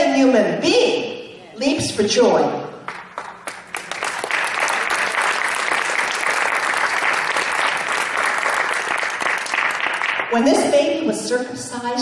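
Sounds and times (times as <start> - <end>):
crowd clapping: 2.8 - 10.4.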